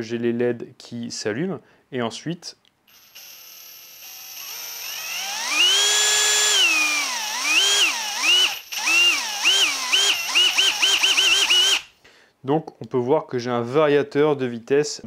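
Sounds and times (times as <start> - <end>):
cordless drill motor whine: 2.9 - 11.9
drill trigger blips: 2.9 - 11.9.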